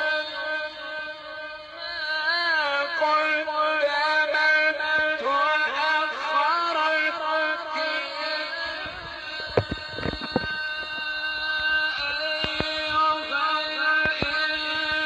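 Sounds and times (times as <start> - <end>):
person reciting melodically: 1.8 - 15.0
sharp clicks: 12.3 - 12.9, 13.9 - 14.6.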